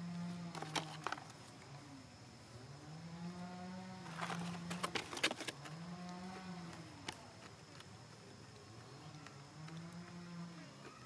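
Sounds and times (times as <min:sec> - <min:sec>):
crackling of dry leaves and twigs: 0:00.4 - 0:01.8, 0:04.0 - 0:11.0.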